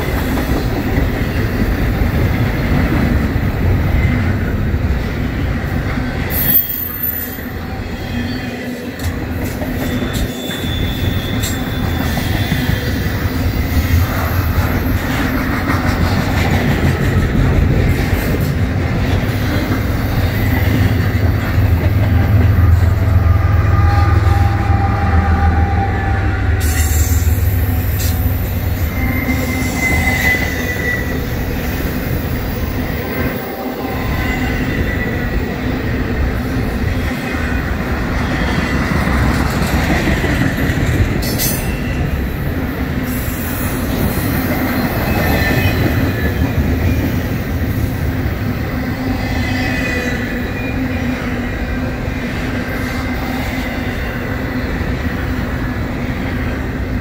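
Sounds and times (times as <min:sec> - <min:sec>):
train wheels rumbling on rail: 0:00.0 - 0:57.0
thin wheel squeals: 0:09.8 - 0:12.9, 0:28.8 - 0:31.2.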